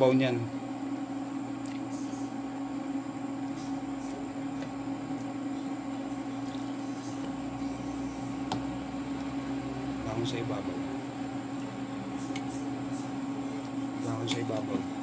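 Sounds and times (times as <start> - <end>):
steady machine hum: 0.0 - 15.0.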